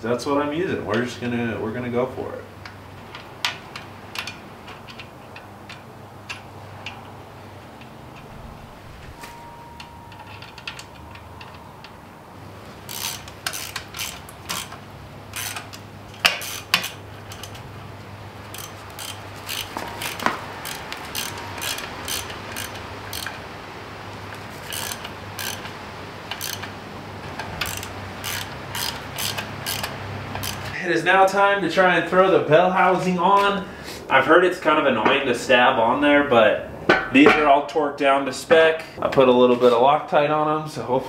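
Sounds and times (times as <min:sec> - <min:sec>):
ratchet wrench clicking: 0:03.1 - 0:07.2, 0:09.8 - 0:11.9, 0:12.8 - 0:17.6, 0:18.5 - 0:23.5, 0:24.3 - 0:26.8, 0:27.4 - 0:30.8.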